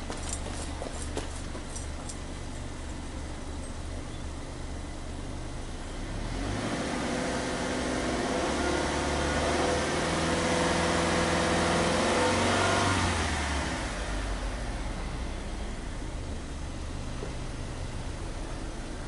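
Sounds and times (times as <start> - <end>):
car engine revving: 6.0 - 15.9.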